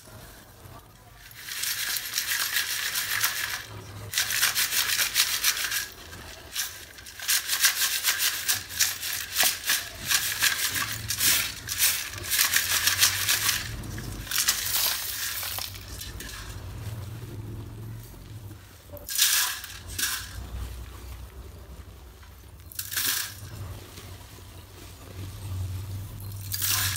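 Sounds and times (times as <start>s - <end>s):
chips rattling in a mesh sieve: 1.0s - 17.0s, 19.0s - 20.9s, 22.6s - 24.1s, 26.0s - 26.9s.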